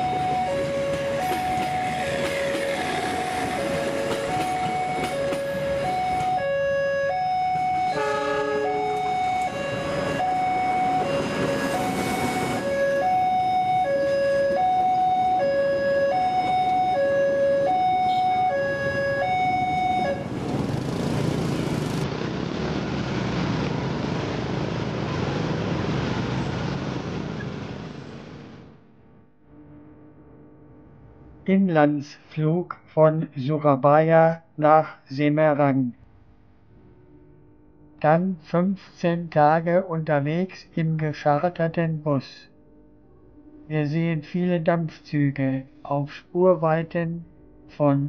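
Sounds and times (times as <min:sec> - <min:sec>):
two-tone siren: 0:00.0 - 0:21.9
street traffic rushing: 0:00.0 - 0:29.0.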